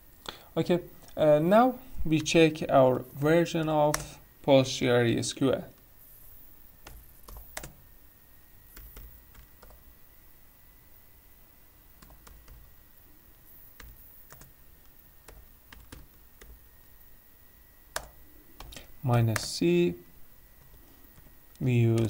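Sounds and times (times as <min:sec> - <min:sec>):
keyboard keys clicking: 0:18.0 - 0:19.6, 0:20.6 - 0:22.0.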